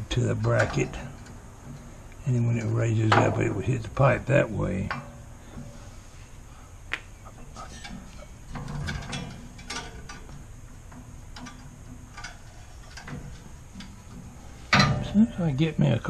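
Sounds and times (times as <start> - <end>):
metal tow bar clicks and knocks: 7.8 - 15.1.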